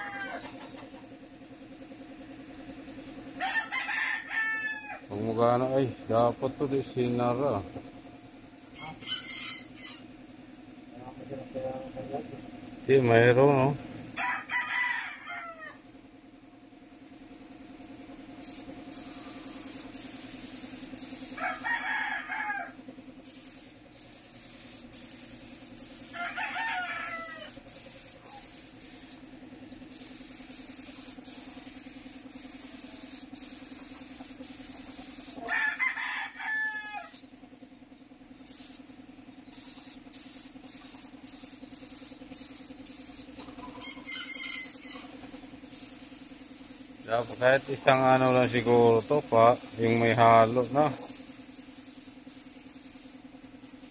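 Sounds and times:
rooster crowing: 0.0 - 0.8, 3.4 - 5.1, 8.7 - 10.1, 14.1 - 15.8, 21.2 - 22.8, 26.0 - 28.6, 35.2 - 37.2, 42.4 - 45.1
steady low hum: 0.0 - 14.5, 15.1 - 53.9.

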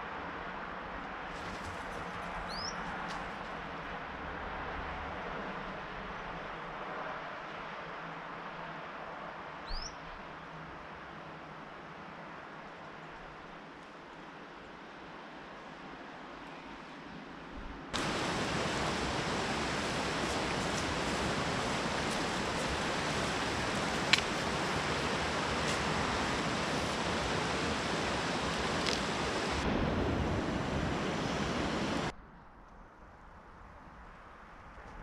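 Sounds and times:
river rushing over rocks: 18.0 - 32.1.

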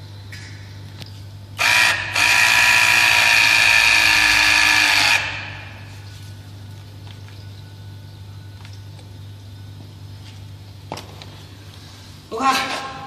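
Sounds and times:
press tool motor whining: 1.6 - 5.5.

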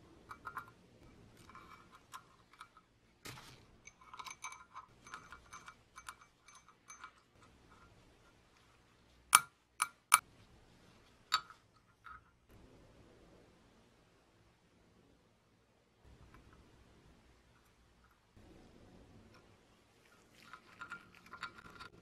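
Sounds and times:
metal parts clicking and clinking: 0.3 - 8.0, 19.4 - 22.0.

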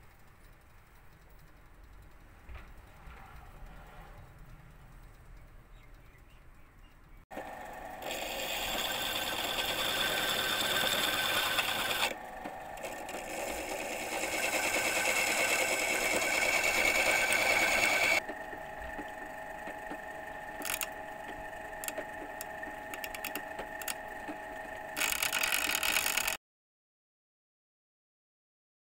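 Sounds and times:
electric drill motor running: 7.3 - 26.4
file scraping rasp: 8.0 - 18.2.

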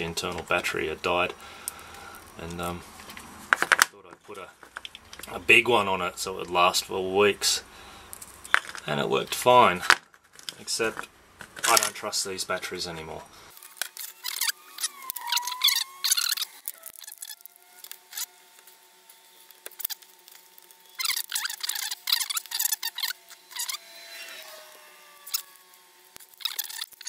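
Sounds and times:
plastic wrap crinkling and tearing: 13.5 - 23.8, 24.6 - 27.0.

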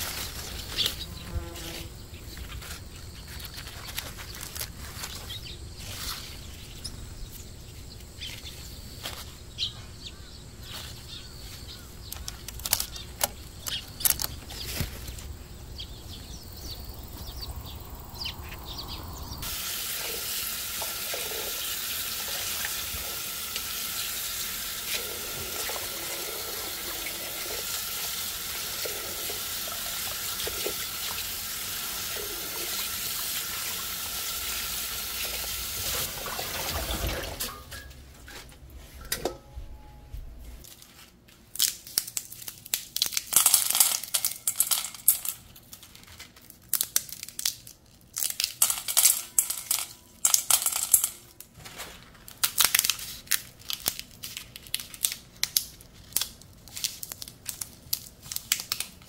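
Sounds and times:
dry bean pods crackling: 2.2 - 6.8, 10.1 - 15.7, 40.6 - 59.0
hands rinsing lettuce: 19.4 - 37.6
tap water running into steel bowl: 19.4 - 37.6.

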